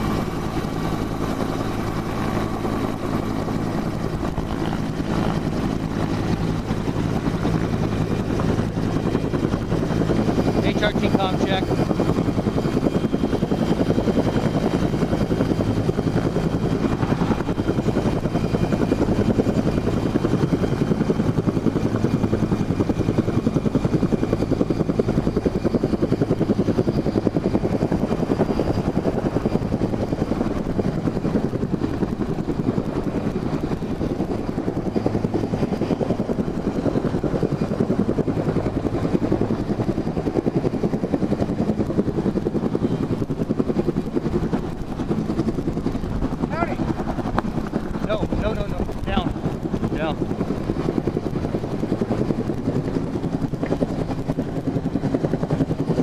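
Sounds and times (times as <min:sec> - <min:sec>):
helicopter hovering overhead: 0:00.0 - 0:56.0.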